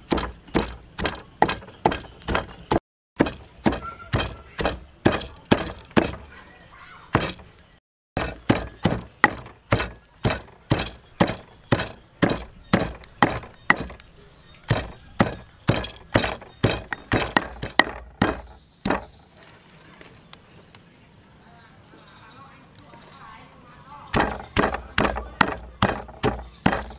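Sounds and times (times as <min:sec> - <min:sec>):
pestle pounding in stone mortar: 0:00.0 - 0:06.3, 0:07.1 - 0:07.5, 0:08.2 - 0:14.0, 0:14.7 - 0:19.1, 0:24.1 - 0:26.9.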